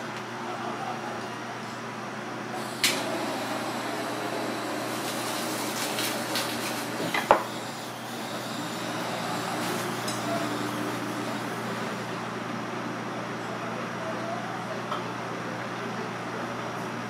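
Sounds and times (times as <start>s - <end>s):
kitchen hum: 0.0s - 17.0s.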